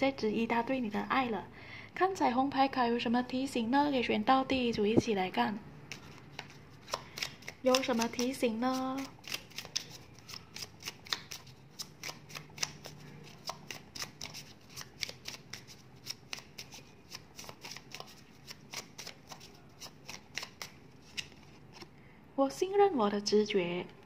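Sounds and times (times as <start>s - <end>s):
cards being shuffled: 5.9s - 21.9s.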